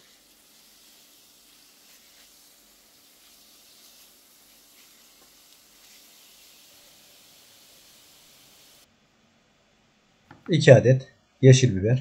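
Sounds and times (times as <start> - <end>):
food sizzling in oil: 0.0 - 8.9.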